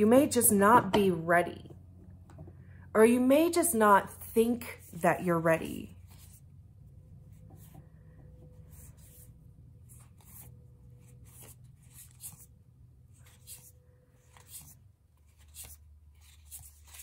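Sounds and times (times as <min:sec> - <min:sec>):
low steady hum: 0:00.0 - 0:17.0
cards rustling and tapping: 0:13.2 - 0:17.0.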